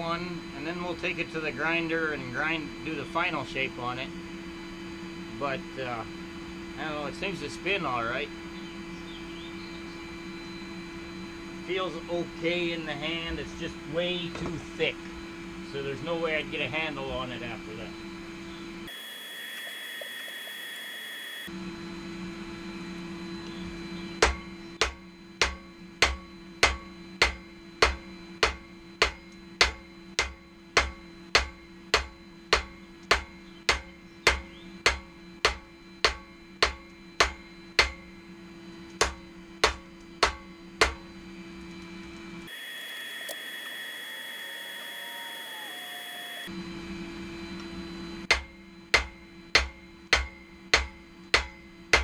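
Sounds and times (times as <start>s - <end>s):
hammer striking steel on an anvil: 24.2s - 38.1s, 39.0s - 41.0s, 48.3s - 52.0s.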